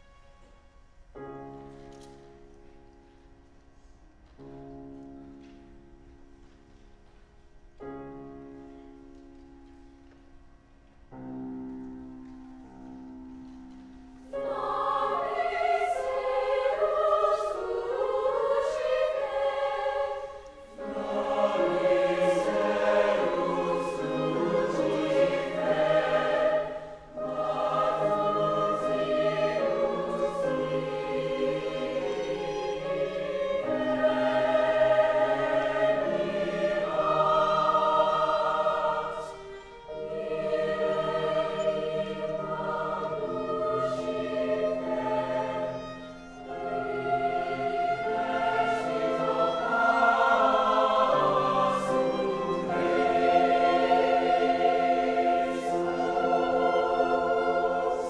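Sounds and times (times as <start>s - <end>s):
violin: 0.0s - 7.4s, 8.2s - 58.0s
piano: 0.0s - 58.0s
mixed choir singing sacred music: 12.9s - 58.0s.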